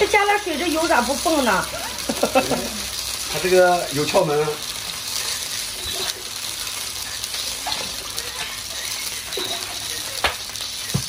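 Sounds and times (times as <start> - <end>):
oil bubbling and sizzling: 0.0 - 11.0.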